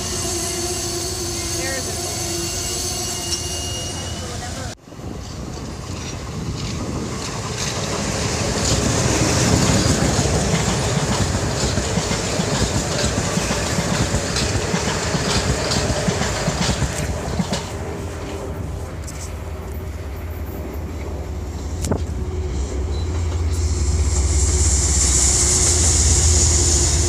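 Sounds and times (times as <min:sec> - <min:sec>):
train wheels rumbling on rail: 0:00.0 - 0:27.0
train wheel clicks: 0:05.2 - 0:17.8.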